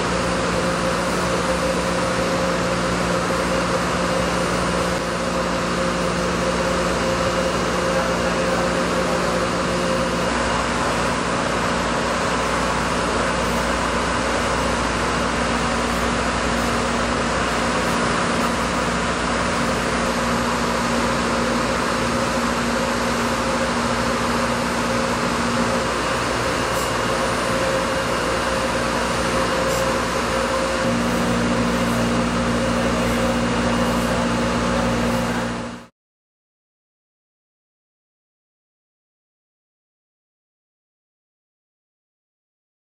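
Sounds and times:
cnc router cutting foam hiss: 0:00.0 - 0:35.9
machine hums: 0:00.0 - 0:35.9.

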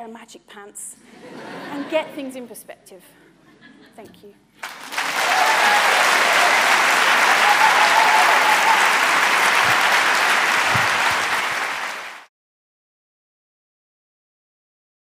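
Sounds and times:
large audience clapping: 0:04.6 - 0:12.3.

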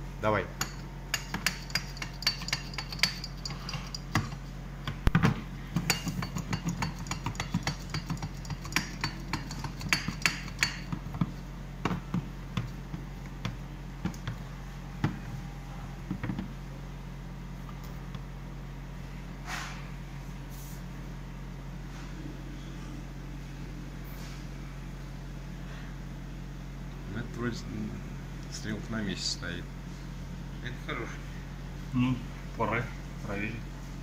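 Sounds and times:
low hum: 0:00.0 - 0:26.4.

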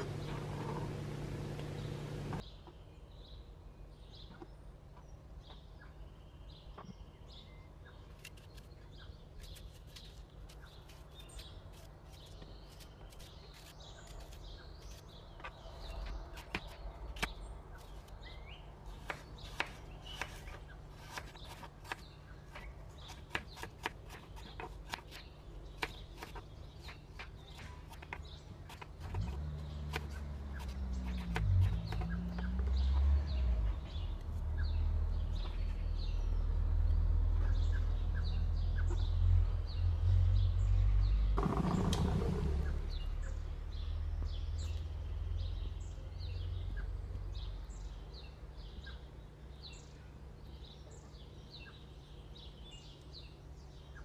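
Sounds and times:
low steady hum: 0:00.0 - 0:07.9.

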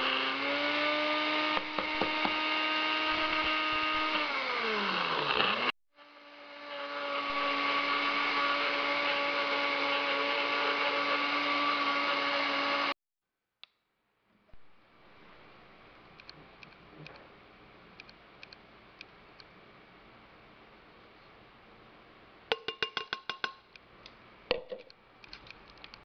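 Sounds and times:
blender motor grinding: 0:00.0 - 0:13.0.

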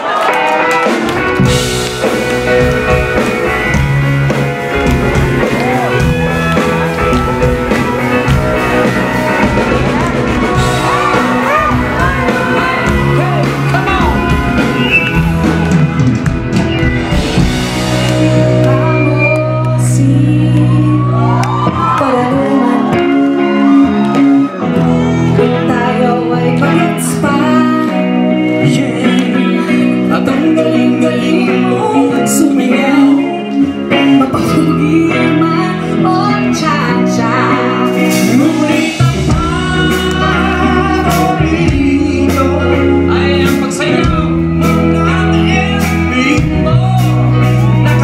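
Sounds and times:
live pop-rock band: 0:00.0 - 0:48.0
woman singing: 0:10.4 - 0:14.8, 0:18.6 - 0:44.2.

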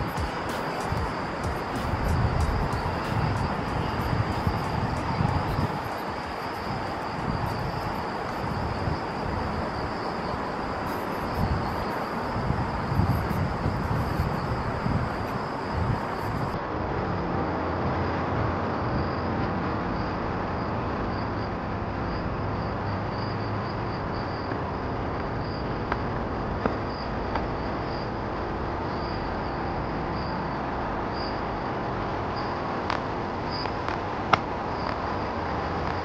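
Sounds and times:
insects chirping: 0:00.0 - 0:16.6, 0:18.9 - 0:36.0
outdoor background rush: 0:00.0 - 0:36.0.

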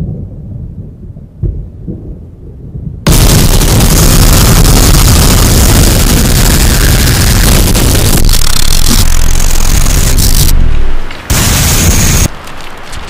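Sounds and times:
low rumble: 0:00.0 - 0:13.0
loud static hiss: 0:03.1 - 0:13.0.

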